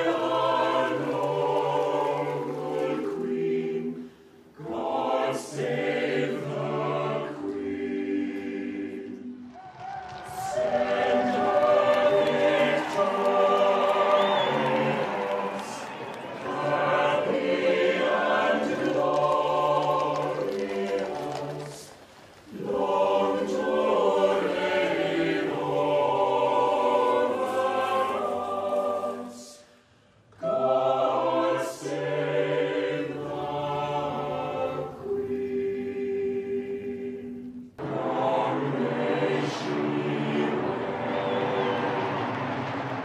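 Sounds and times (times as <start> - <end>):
choir singing: 0.0 - 43.0.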